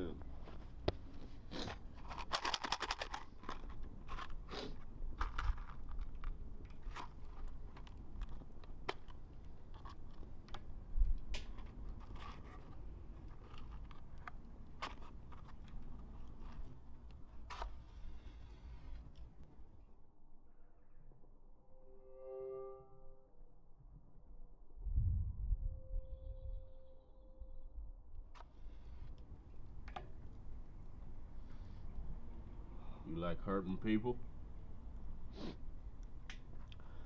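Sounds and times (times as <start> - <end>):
matches rattling: 1.7 - 4.5.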